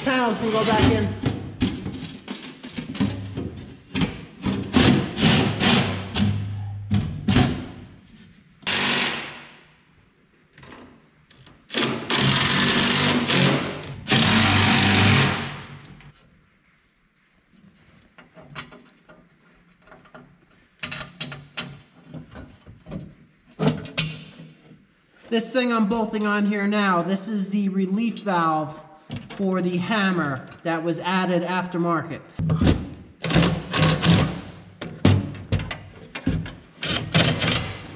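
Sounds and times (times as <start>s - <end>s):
cordless impact driver running: 12.0s - 15.5s.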